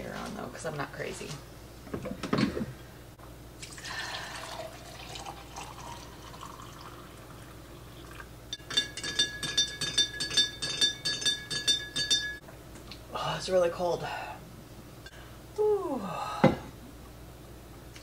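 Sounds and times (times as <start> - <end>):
water pouring into mug: 3.6 - 8.3.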